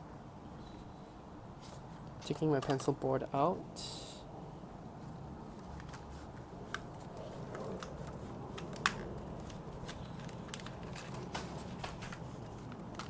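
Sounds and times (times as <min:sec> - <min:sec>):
paper rustling: 0:05.5 - 0:13.0.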